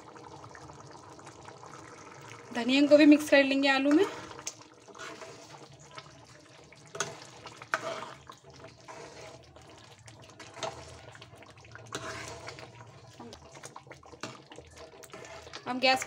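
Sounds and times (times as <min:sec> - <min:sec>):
curry sloshing while stirred: 0:03.8 - 0:16.0.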